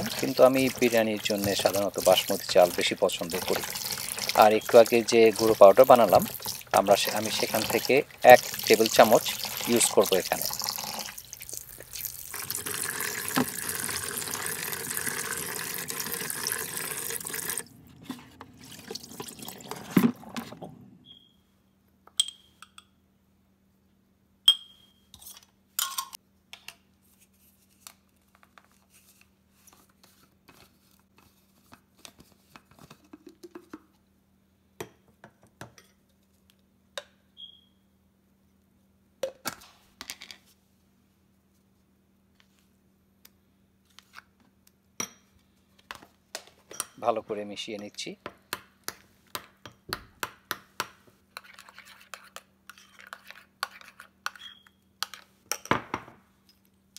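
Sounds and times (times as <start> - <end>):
tap water running into plastic bowl: 0.0 - 17.7, 18.6 - 20.2.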